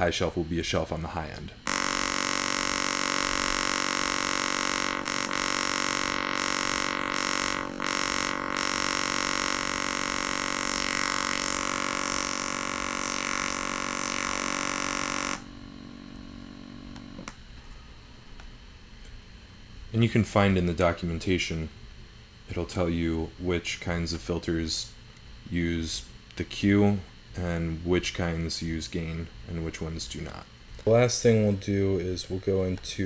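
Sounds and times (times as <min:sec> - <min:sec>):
buzzy synthesizer tone: 0:01.6 - 0:17.3.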